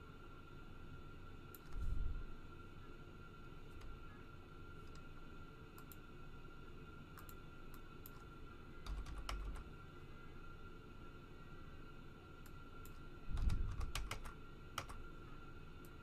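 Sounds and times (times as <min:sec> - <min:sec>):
faint high-pitched electrical whine: 0:00.0 - 0:16.0
keyboard typing clicks: 0:08.8 - 0:09.7, 0:12.4 - 0:15.0.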